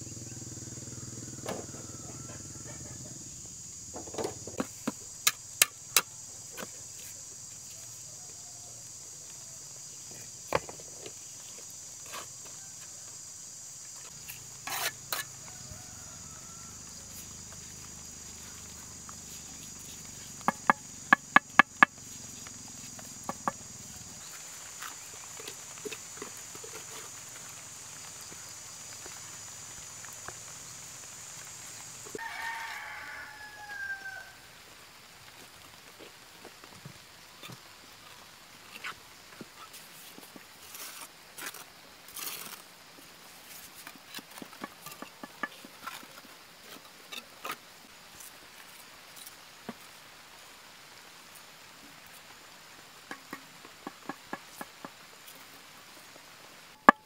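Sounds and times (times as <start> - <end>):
high insect drone: 0.0 - 57.0
rooster crowing: 0.2 - 3.2, 15.2 - 17.3, 32.2 - 34.6
sharp knocks and taps: 20.4 - 22.0, 23.2 - 23.6.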